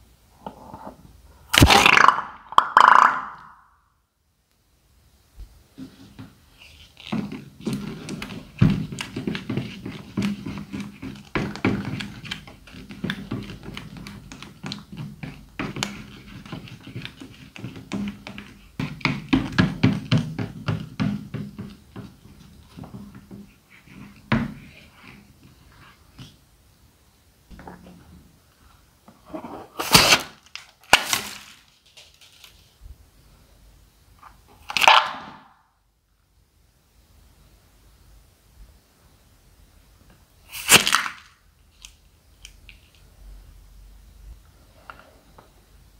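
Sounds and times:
balloon snapping: 1.5 - 3.6, 29.8 - 31.5, 40.5 - 41.3
balloon rustling: 5.7 - 26.4, 29.1 - 32.8.

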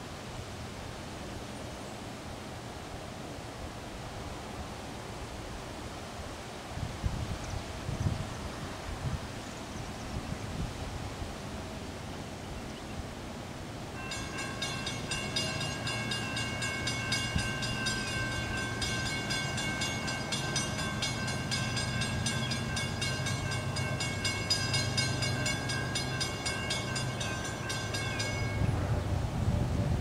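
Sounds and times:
diesel train engine rumble: 14.0 - 30.0.

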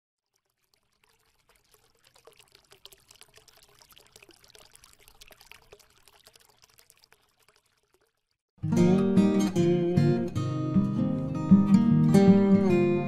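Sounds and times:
faint trickling crackling clicks: 0.2 - 8.4.

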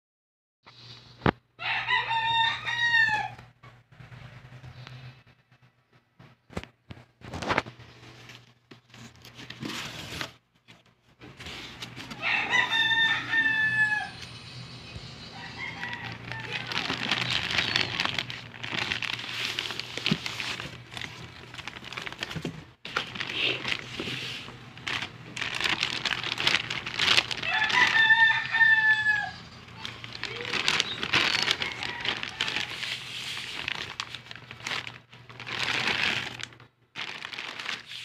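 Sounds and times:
plastic bag rustling and crinkling: 6.5 - 13.4, 15.4 - 38.0.

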